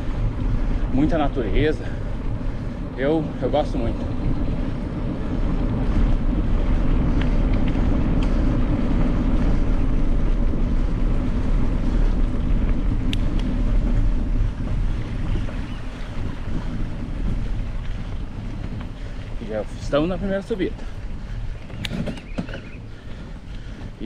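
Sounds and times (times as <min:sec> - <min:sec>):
wind buffeting microphone: 0:00.0 - 0:24.0
sharp clicks: 0:21.7 - 0:22.7.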